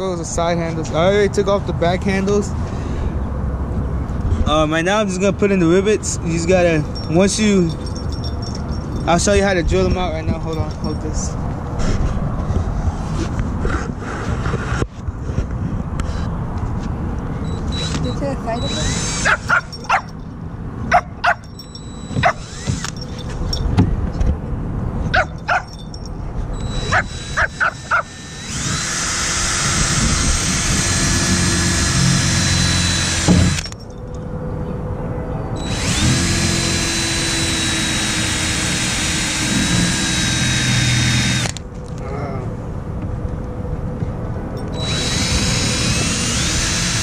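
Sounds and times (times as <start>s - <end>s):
cordless drill whining: 17.4s - 19.6s, 21.7s - 23.3s, 26.6s - 33.8s, 35.6s - 41.6s, 44.8s - 47.0s.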